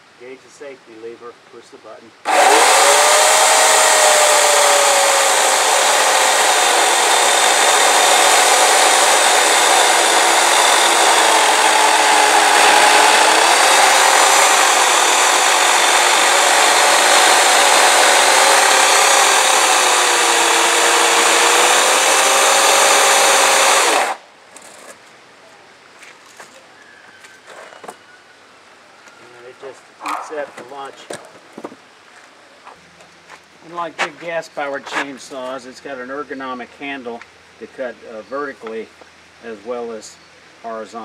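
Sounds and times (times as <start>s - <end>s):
electric chainsaw motor whine: 2.3s - 24.2s
chain cutting wood: 2.3s - 24.8s.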